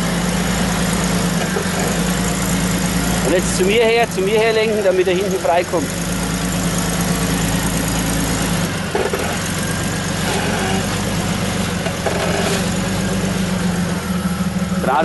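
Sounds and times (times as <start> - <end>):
car engine at low revs: 0.0 - 15.0.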